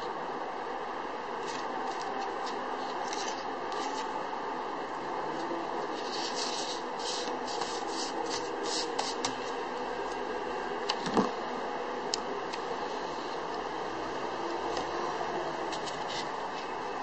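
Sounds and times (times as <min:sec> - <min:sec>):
steady background hiss: 0:00.0 - 0:17.0
playing cards scraping on felt: 0:01.4 - 0:04.1, 0:05.9 - 0:09.4.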